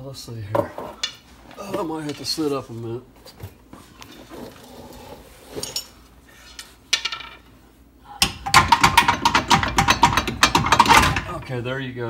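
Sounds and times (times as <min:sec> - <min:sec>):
sharp metal knocks: 0:08.2 - 0:11.4
metallic clanking and rattling: 0:08.2 - 0:11.5.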